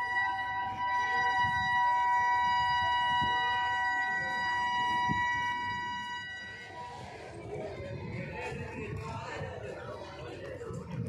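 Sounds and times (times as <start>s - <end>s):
train horn chord: 0.0s - 6.9s.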